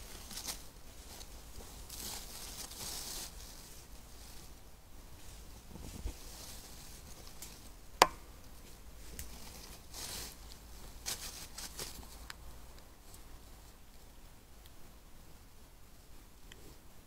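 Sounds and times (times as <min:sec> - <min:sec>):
animal scratching in dry leaves: 0:00.0 - 0:07.7, 0:09.2 - 0:12.3.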